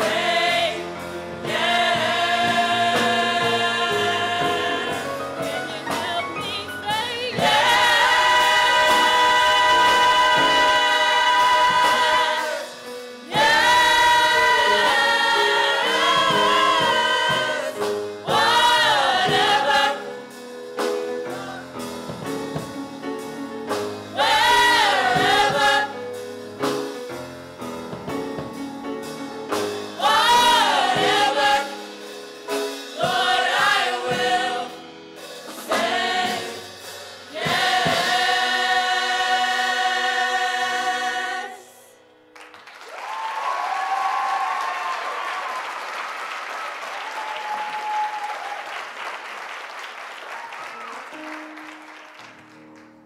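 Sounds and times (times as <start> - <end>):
gospel choir singing in harmony: 0.0 - 42.3.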